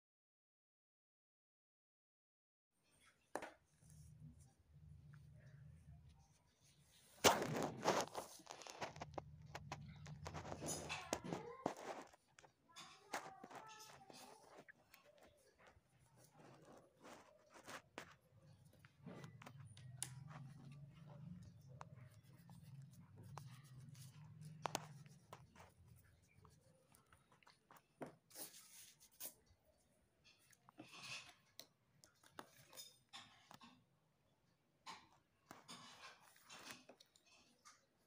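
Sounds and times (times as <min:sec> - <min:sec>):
pencil drawing on paper: 0:10.1 - 0:29.4.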